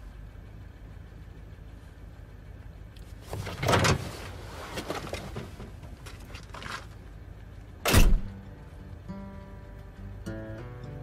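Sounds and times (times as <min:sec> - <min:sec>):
car door slamming shut: 0:07.9 - 0:08.3
car door opening clunk: 0:07.9 - 0:08.4.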